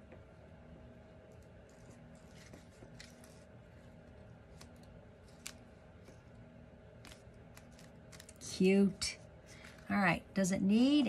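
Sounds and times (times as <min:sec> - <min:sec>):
faint steady hum: 0:00.0 - 0:11.0
cardstock clicks and rustles: 0:07.0 - 0:08.4.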